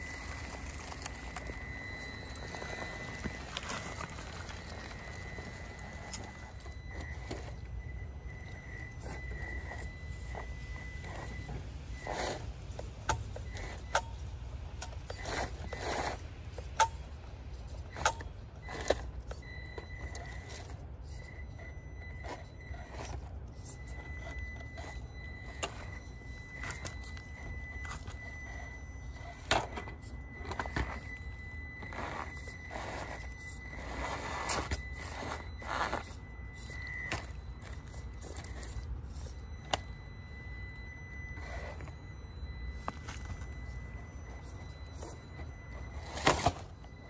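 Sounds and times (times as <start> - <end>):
toy car motor whine: 0.0 - 47.0
tyres scraping on rock: 2.2 - 7.5, 31.8 - 36.2.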